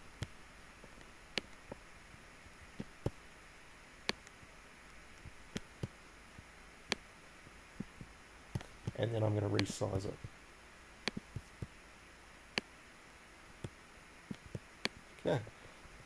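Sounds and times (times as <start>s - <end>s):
faint steady hiss: 0.0s - 16.0s
computer mouse clicking: 9.6s - 9.8s, 11.0s - 11.7s, 13.6s - 15.0s.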